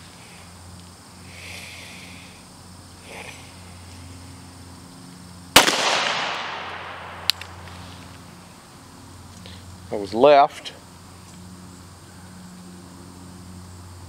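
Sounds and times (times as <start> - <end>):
pistol shot: 5.5 - 7.6.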